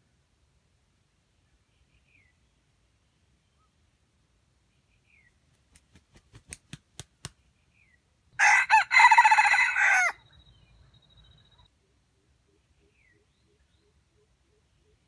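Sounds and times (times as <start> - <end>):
sharp claps: 5.8 - 7.4
rooster crowing: 8.4 - 10.2.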